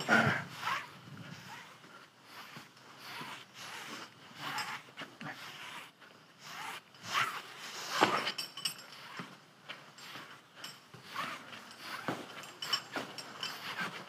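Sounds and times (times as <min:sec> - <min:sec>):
rope running through belay device: 0:00.0 - 0:14.0
light metallic clinks: 0:06.9 - 0:14.0.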